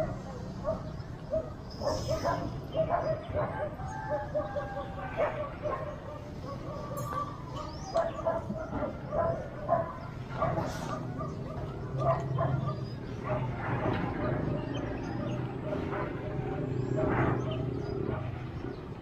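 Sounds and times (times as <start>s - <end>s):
dog barking: 0.0s - 13.6s.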